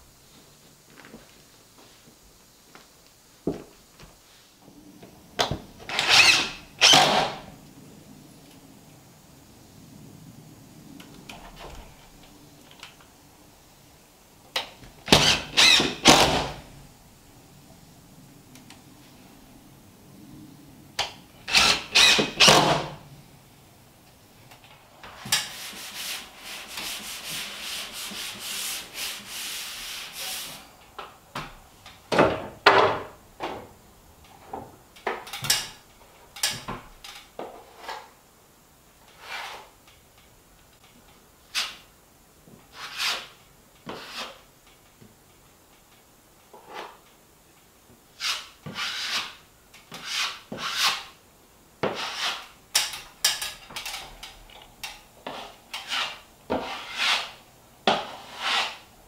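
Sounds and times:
sanding block scraping drywall: 0:25.2 - 0:30.7, 0:39.2 - 0:39.7, 0:42.7 - 0:44.4, 0:48.2 - 0:51.2, 0:51.8 - 0:52.6, 0:55.2 - 0:58.9.

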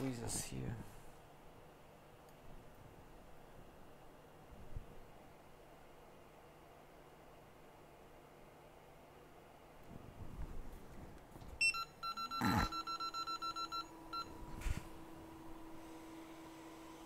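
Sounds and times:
blower hum: 0:00.0 - 0:17.0
short electronic beeps: 0:11.6 - 0:14.3.

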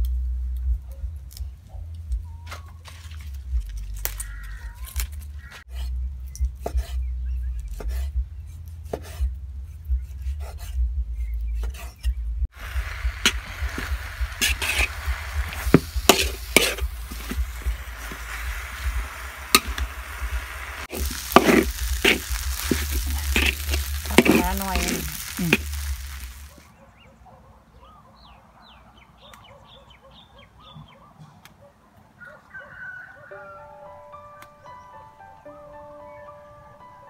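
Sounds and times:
food sizzling in a wok: 0:12.5 - 0:26.6
metal spatula scraping wok: 0:12.7 - 0:26.6.

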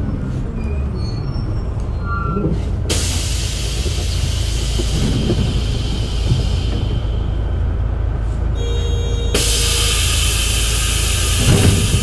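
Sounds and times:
bus engine idling: 0:00.0 - 0:12.0
compressed air hissing: 0:02.9 - 0:07.6, 0:09.4 - 0:12.0.

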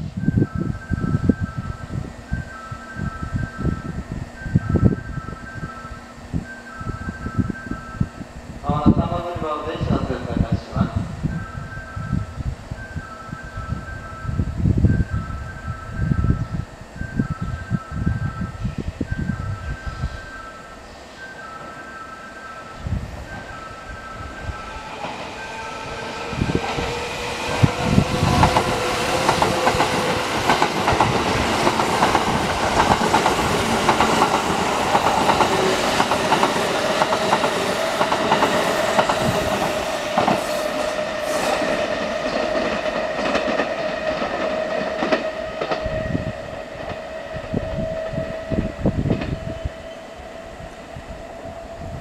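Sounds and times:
train motor whine: 0:00.0 - 0:52.0
train wheels clattering: 0:24.8 - 0:47.2.

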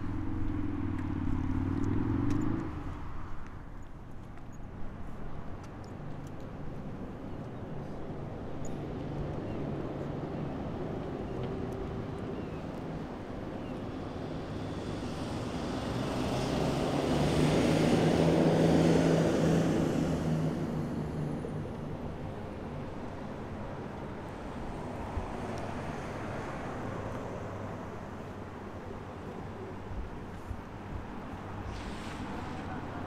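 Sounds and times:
motor traffic rumble: 0:00.0 - 0:33.0
vehicle driving past: 0:14.0 - 0:21.6.

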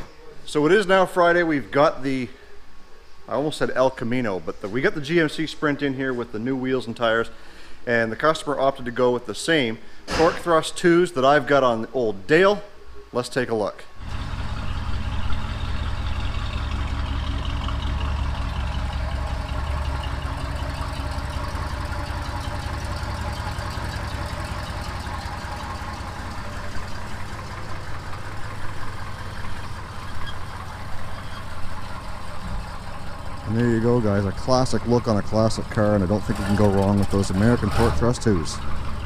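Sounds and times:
car engine running: 0:14.0 - 0:39.0.

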